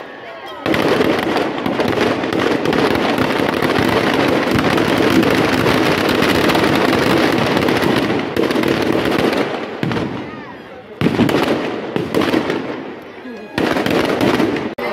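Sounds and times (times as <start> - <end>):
firecrackers crackling: 0.0 - 14.9.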